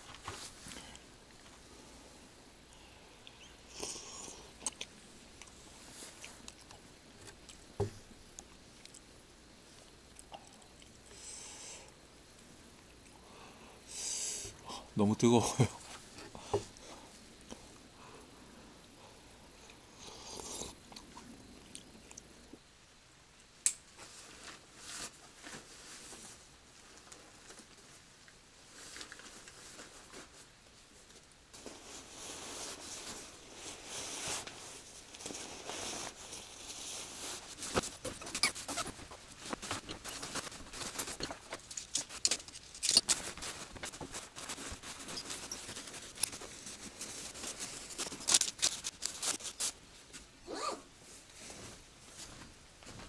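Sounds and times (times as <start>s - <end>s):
camping gear rustling and clicking: 28.7s - 50.3s.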